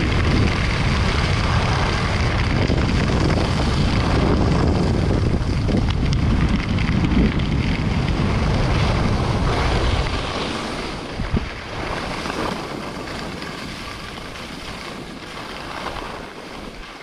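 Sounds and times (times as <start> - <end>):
wind buffeting microphone: 0.0 - 17.0
skis hissing on snow: 3.2 - 5.6, 8.6 - 17.0.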